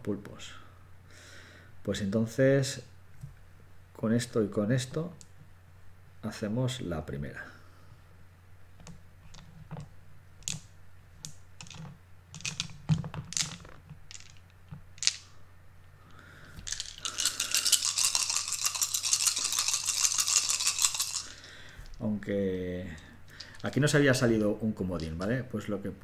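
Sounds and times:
dice clicking on table: 0:08.8 - 0:15.3, 0:16.6 - 0:21.3
dice rattling in hand: 0:10.4 - 0:15.3, 0:16.6 - 0:22.0, 0:23.4 - 0:24.3, 0:25.0 - 0:25.4.

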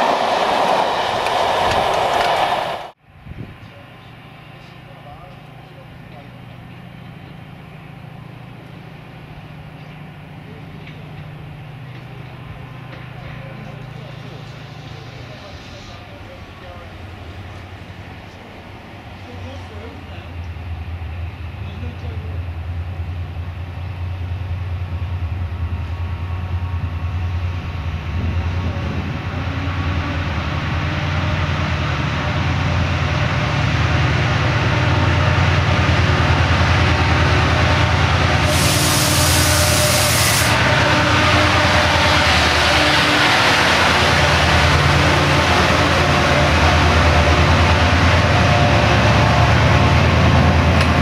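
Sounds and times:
train engine rumble: 0:00.0 - 0:51.0
train rushing past: 0:00.0 - 0:51.0
sharp hiss: 0:38.4 - 0:40.6.

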